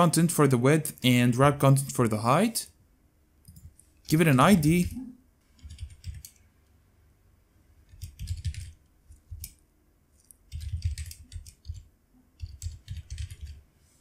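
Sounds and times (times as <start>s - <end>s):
typing on computer keyboard: 5.6s - 6.4s, 7.9s - 9.6s, 10.5s - 13.6s.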